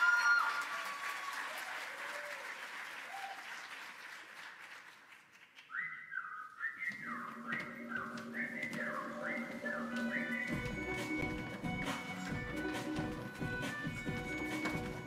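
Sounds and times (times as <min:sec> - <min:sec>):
audience applause: 0:00.0 - 0:05.8
music with high stepping melody: 0:09.5 - 0:15.0.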